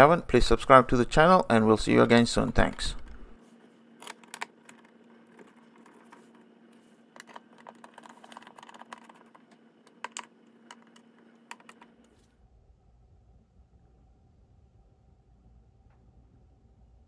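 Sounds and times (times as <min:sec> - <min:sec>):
faint steady hum: 0:00.0 - 0:17.0
screwdriver clicking and scraping: 0:07.2 - 0:11.9.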